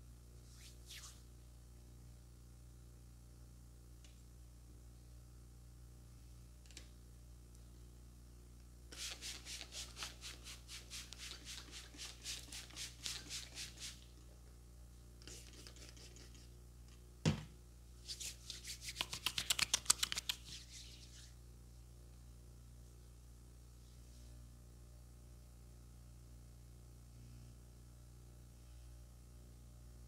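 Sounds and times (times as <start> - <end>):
hands rubbing together: 9.0 - 14.1, 15.2 - 16.5, 18.0 - 21.3.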